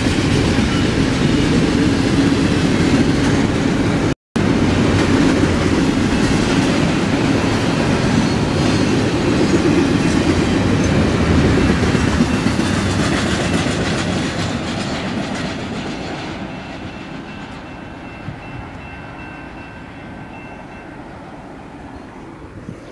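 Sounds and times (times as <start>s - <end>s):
train wheels clattering on rails: 0.0s - 21.1s.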